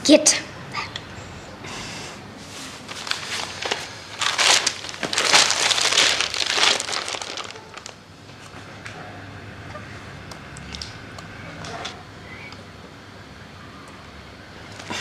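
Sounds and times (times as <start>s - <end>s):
newspaper rustling: 2.6s - 8.0s.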